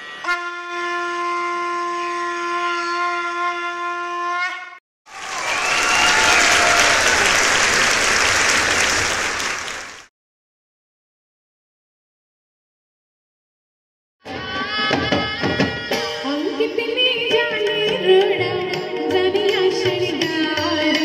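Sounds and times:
conch shell blown: 0.0s - 4.8s
applause and cheering: 5.1s - 10.1s.

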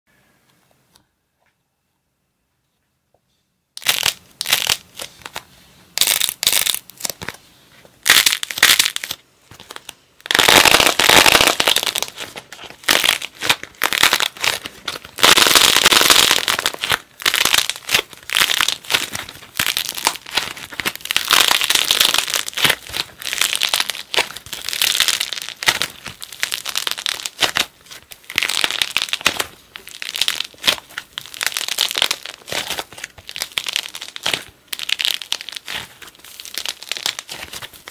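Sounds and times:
clay crust cracking and crunching: 3.8s - 37.9s
soft clay being kneaded: 11.6s - 37.9s.

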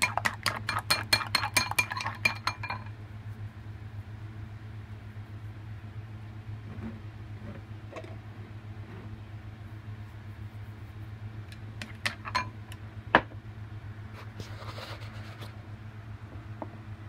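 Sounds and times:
metal utensil clinking on dish: 0.0s - 2.9s, 12.0s - 12.5s
low steady hum: 0.0s - 17.0s.

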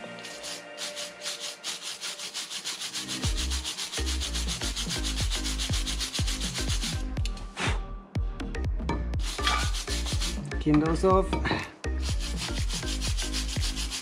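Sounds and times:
wire brush scrubbing metal: 0.0s - 7.0s, 9.2s - 10.4s, 12.0s - 14.0s.

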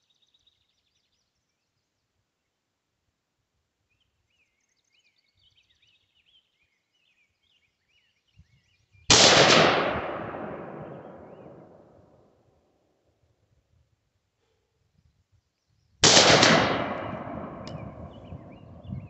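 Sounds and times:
rifle shot echoing: 9.1s - 12.0s, 16.0s - 19.0s.

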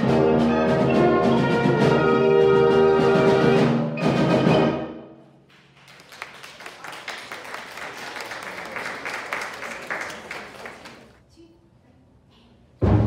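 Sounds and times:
audience applauding: 5.5s - 11.2s.

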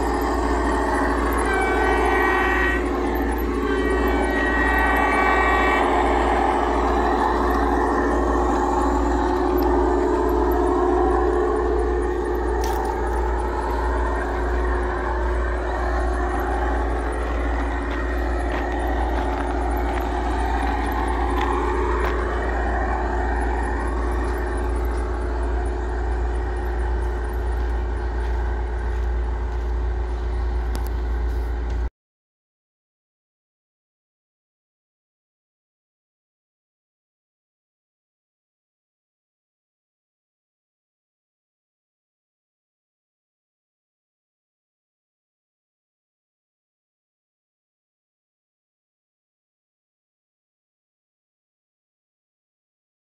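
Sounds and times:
horn-like note: 0.0s - 27.5s
vehicle engine rumbling: 0.0s - 31.9s.

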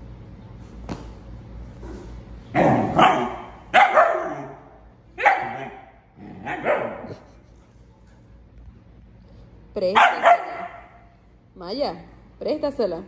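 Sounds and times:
puppy barking: 2.8s - 4.6s, 5.2s - 7.2s, 10.0s - 11.0s.

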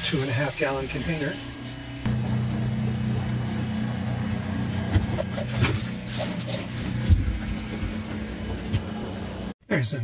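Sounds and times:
electric pump humming: 0.0s - 9.6s.

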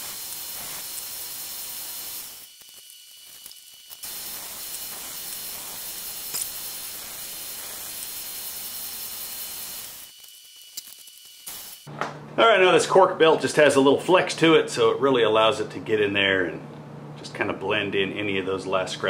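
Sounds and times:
belt grinder whirring: 0.0s - 11.9s.

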